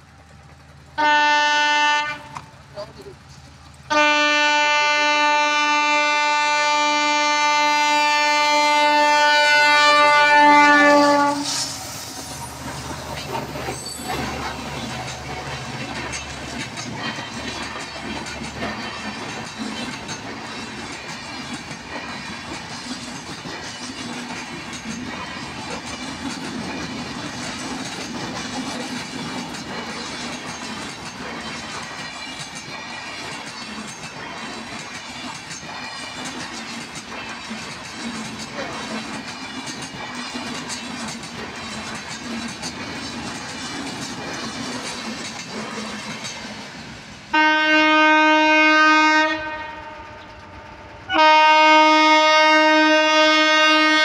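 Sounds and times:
train wheels clattering over track: 0.0s - 47.6s
locomotive horn blast: 1.0s - 2.5s, 3.9s - 11.8s, 47.3s - 50.3s, 51.1s - 54.0s.

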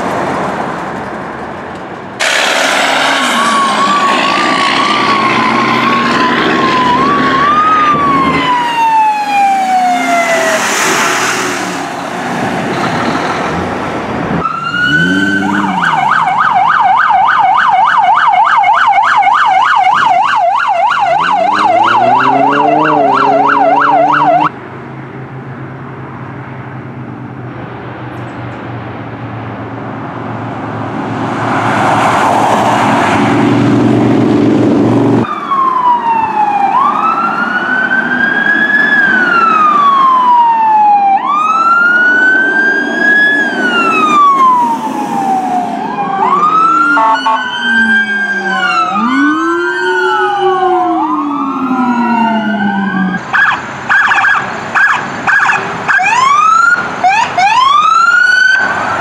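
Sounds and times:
vehicle engine and road noise: 0.0s - 59.0s
short chopped siren blasts: 2.2s - 11.0s, 14.4s - 18.0s, 19.1s - 24.5s, 43.8s - 53.2s
lower-pitched siren: 2.2s - 12.1s, 14.4s - 24.6s, 35.1s - 58.7s
wail siren: 2.3s - 11.1s, 14.4s - 24.5s, 35.2s - 58.8s.

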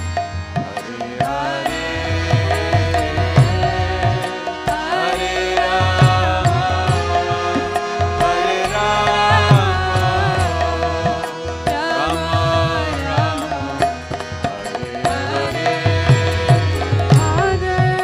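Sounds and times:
harmonium chords: 0.0s - 18.0s.

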